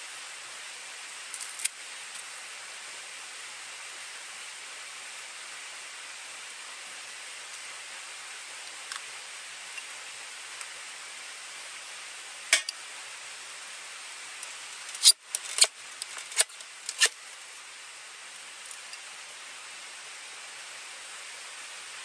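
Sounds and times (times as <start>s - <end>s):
striker scraping ferro rod: 14.9s - 17.2s.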